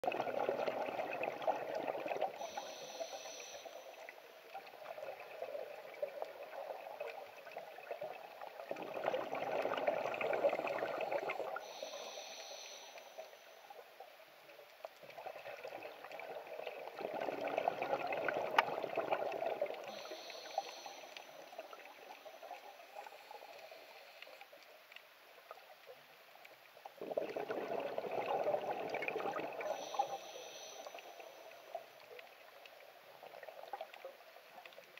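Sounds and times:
exhaled bubbles rushing: 0.0 - 2.4, 4.6 - 11.6, 15.2 - 19.9, 27.0 - 29.8.

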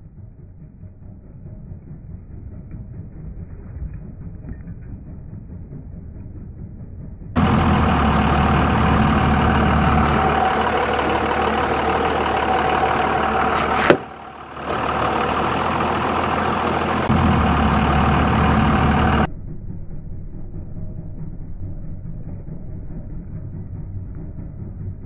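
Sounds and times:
diesel engine running: 0.0 - 25.0.

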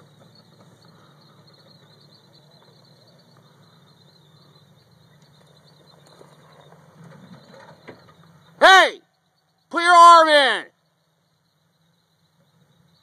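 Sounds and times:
engine idling: 0.0 - 9.2.

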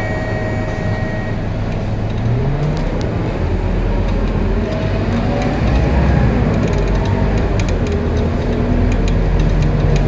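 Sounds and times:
bus diesel engine running: 0.0 - 10.0.

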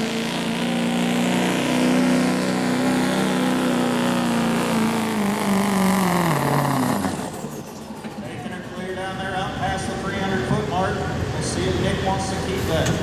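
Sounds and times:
diesel truck engine under load: 0.0 - 13.0.

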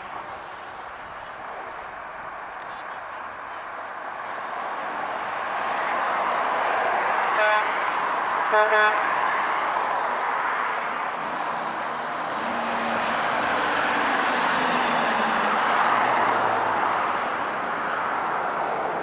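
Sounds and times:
traffic passing: 0.0 - 19.0
vehicle horn toots: 7.4 - 7.8, 8.5 - 9.0.

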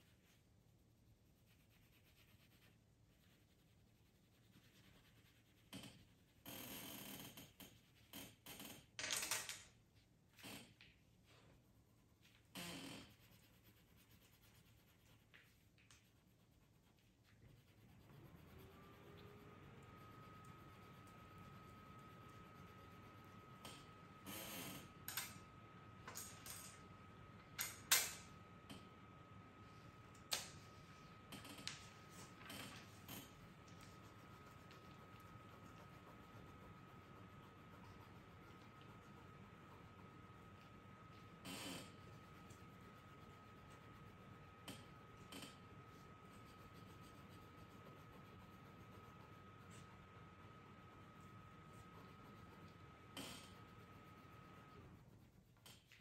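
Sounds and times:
pencil shading on paper: 13.0 - 15.6, 16.4 - 24.0, 32.8 - 55.6.

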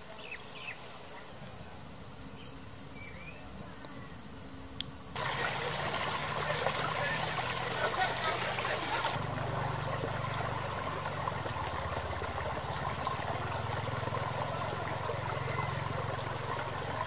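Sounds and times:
stream babbling over rocks: 5.2 - 17.0.

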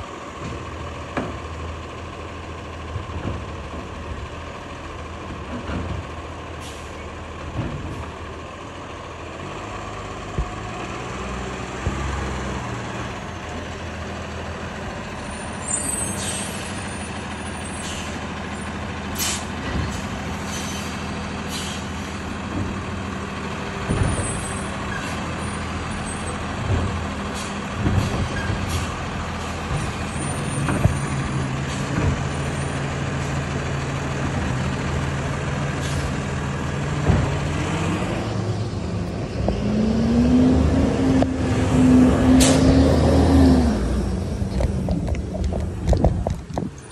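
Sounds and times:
garbage truck engine running: 0.0 - 46.9
truck clunks: 0.2 - 46.9
air-brake hisses: 15.6 - 16.9, 19.1 - 22.2.

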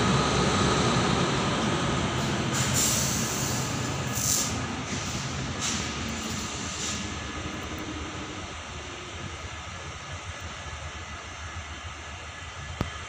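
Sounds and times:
electric locomotive humming: 0.0 - 13.0
short hisses: 2.5 - 7.2.

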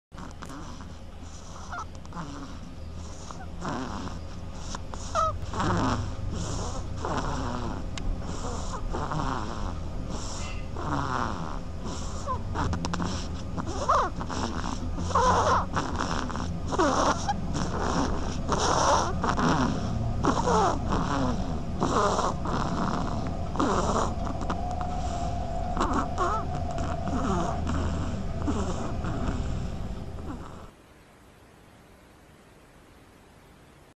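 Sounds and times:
duckling snoring: 0.1 - 30.8
short rising squeaks: 12.2 - 30.7.

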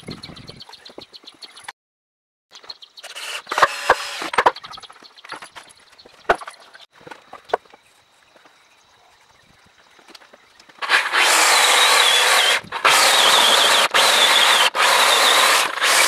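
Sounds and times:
wood scraping: 10.2 - 16.0.

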